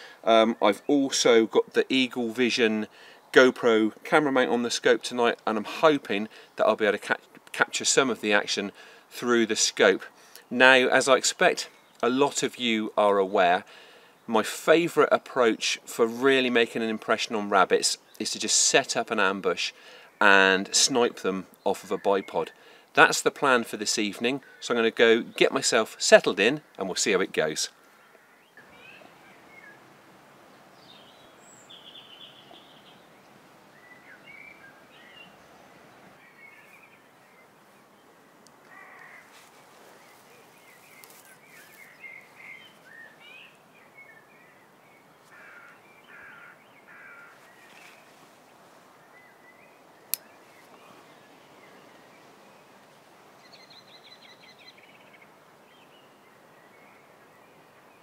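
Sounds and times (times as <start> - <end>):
bird calls: 26.4 - 29.9, 30.5 - 48.3, 48.9 - 58.0
crow-like harsh calls: 27.7 - 29.0, 38.6 - 39.5, 45.2 - 47.5.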